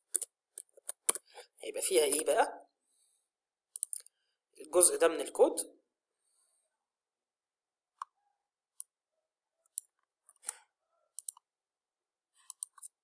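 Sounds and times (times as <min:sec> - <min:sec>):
keyboard and mouse clicks: 0:00.0 - 0:01.4, 0:03.7 - 0:04.1, 0:09.7 - 0:10.6, 0:11.2 - 0:11.5, 0:12.4 - 0:13.0.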